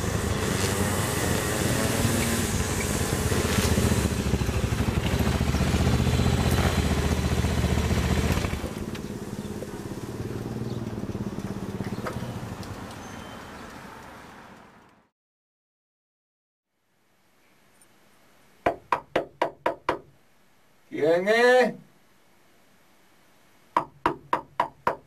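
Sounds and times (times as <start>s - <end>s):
motorcycle engine riding: 0.0s - 14.0s.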